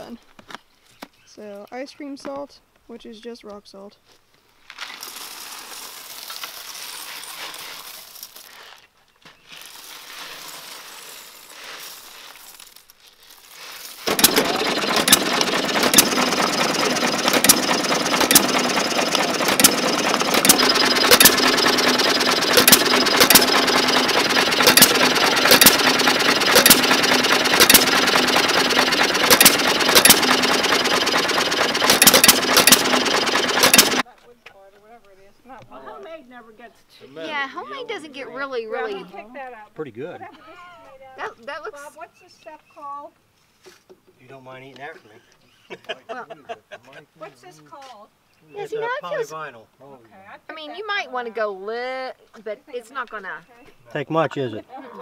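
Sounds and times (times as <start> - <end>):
rock salt pouring onto ice: 4.8 - 8.8, 9.5 - 14.0
mechanical clatter: 14.0 - 34.0
hit-and-miss engine banging: 14.1 - 34.0.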